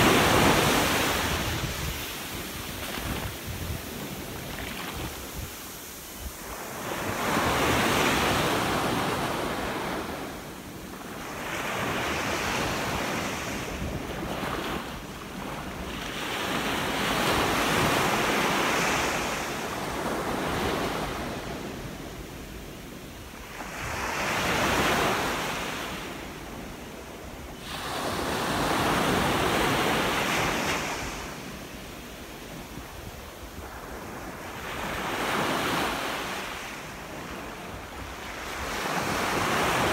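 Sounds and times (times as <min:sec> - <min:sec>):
wind rumble on microphone: 0:00.0 - 0:06.5
surf breaking on a beach: 0:00.0 - 0:22.2.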